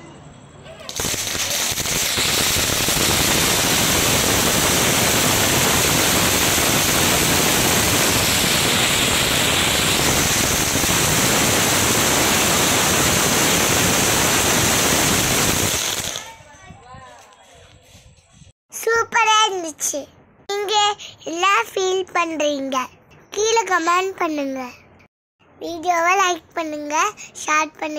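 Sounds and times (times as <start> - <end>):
firework hissing sparks: 0.9 - 16.4.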